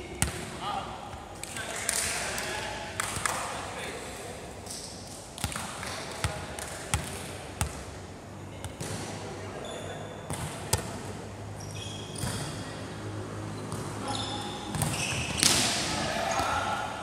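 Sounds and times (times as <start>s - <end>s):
sneakers squeaking on floor: 9.5s - 10.5s, 11.6s - 12.7s, 13.6s - 15.7s
volleyball smacks: 14.7s - 16.5s
players calling out: 15.7s - 17.0s.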